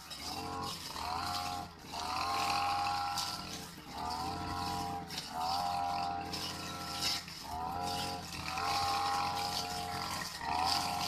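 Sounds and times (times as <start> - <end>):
brush cutter engine revving: 0.0 - 11.0.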